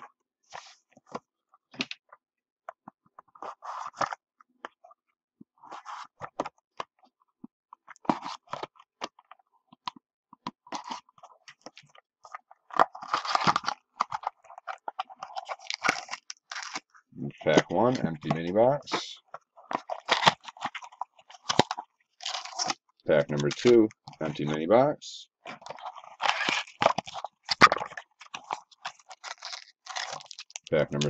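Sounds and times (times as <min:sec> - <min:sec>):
cardboard rustling and scraping: 0:03.2 - 0:04.2, 0:05.6 - 0:06.6, 0:25.5 - 0:30.6.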